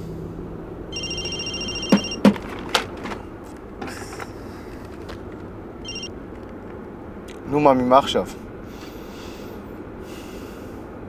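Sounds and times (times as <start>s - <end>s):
mobile phone ringtone: 0.9s - 2.4s, 5.8s - 6.1s.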